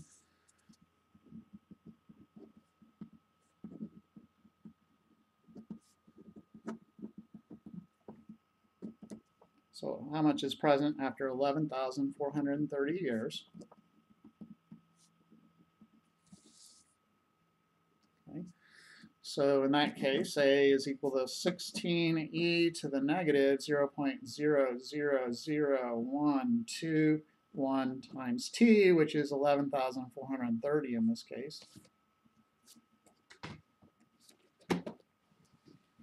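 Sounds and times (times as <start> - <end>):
pen scratching on paper: 0.0 - 9.3
faint steady hum: 0.0 - 36.0.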